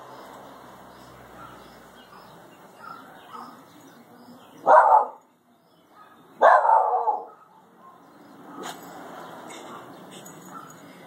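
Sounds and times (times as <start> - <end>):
dog barking: 1.4 - 3.6, 4.6 - 5.2, 5.9 - 8.8, 9.6 - 10.8.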